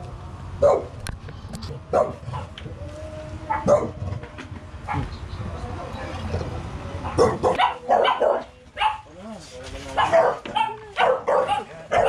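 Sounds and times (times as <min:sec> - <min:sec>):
dog barking: 0:00.6 - 0:01.0, 0:01.9 - 0:02.5, 0:03.5 - 0:04.0, 0:07.0 - 0:09.1, 0:10.0 - 0:12.0.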